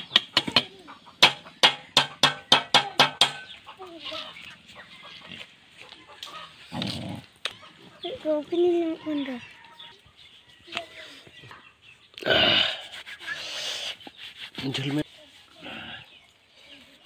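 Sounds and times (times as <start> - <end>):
guinea fowl cackling: 3.4 - 6.8.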